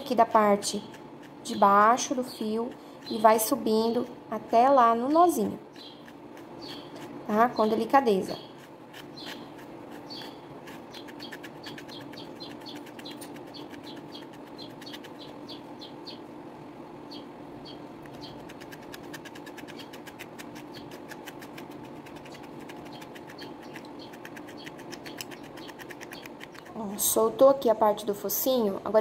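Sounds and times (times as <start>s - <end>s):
brush scratching through yarn: 0.0s - 3.3s, 5.6s - 15.4s, 18.1s - 26.8s.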